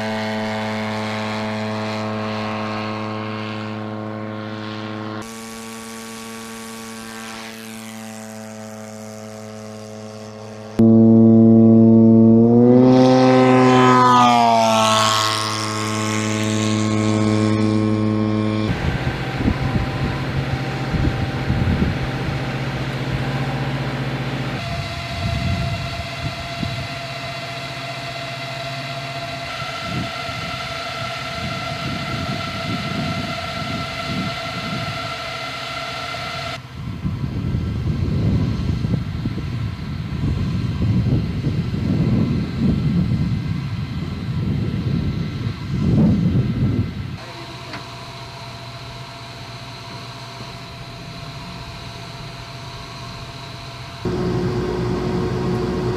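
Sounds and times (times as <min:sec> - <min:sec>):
aircraft engine and propeller passing: 0:00.0 - 0:55.9
steady machine hum: 0:00.0 - 0:55.9
wind rumble on microphone: 0:10.8 - 0:27.6, 0:29.4 - 0:35.4, 0:36.4 - 0:47.2, 0:50.6 - 0:55.9.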